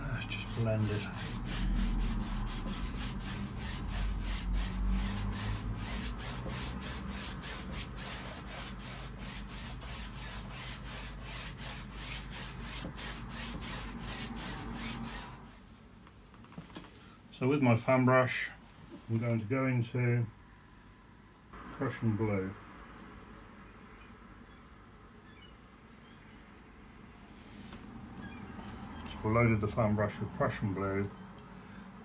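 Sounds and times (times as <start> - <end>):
brush scrubbing on canvas: 0.0 - 15.8.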